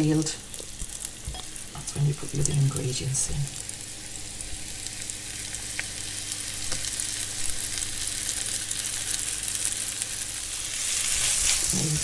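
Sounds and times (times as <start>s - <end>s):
beef sizzling in a pan: 0.0s - 12.0s.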